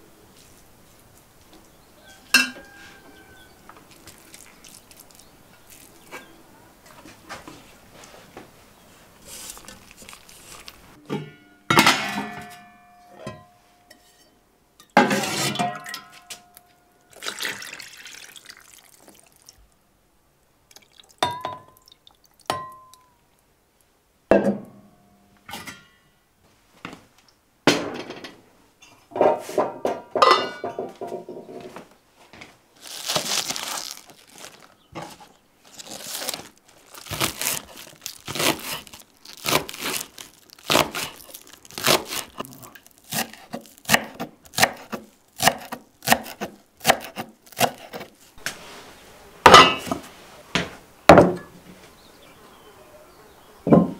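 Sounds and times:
tableware handling noise: 2.2 - 3.3, 11.0 - 14.3, 27.7 - 31.7, 49.5 - 50.1
dishes and cutlery clinking: 2.3 - 3.0, 11.1 - 16.7, 27.8 - 31.4.

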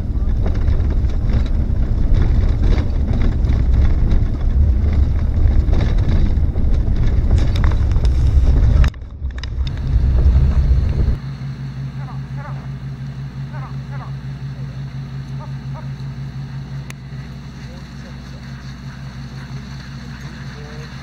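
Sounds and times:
wind noise on microphone: 0.0 - 11.2
engine idling: 0.0 - 21.0
vehicle low rumble: 0.0 - 21.0.

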